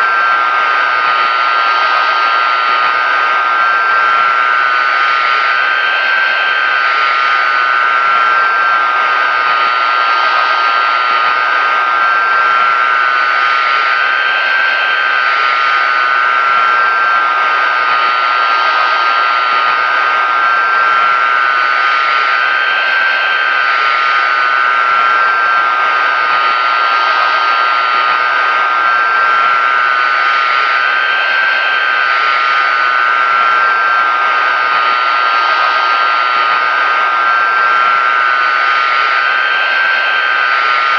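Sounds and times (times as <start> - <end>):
high engine whine: 0.0 - 40.9
jet engines running: 0.0 - 40.9.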